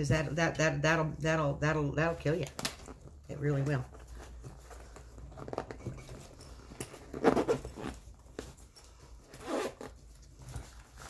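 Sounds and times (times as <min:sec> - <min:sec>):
zipper being pulled: 0:05.3 - 0:10.7.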